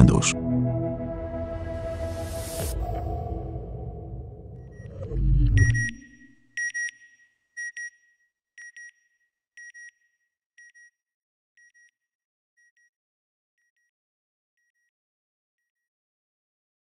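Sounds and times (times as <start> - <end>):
electronic double beep: 4.5 - 6.8.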